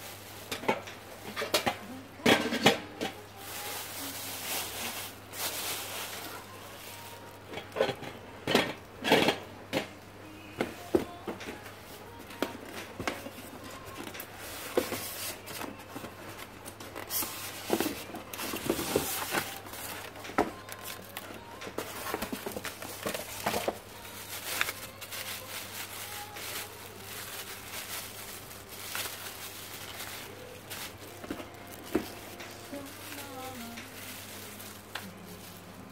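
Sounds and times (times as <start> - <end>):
plastic wrapping crinkling: 3.0 - 8.0, 13.0 - 35.9
cardboard box shifting: 16.8 - 35.9.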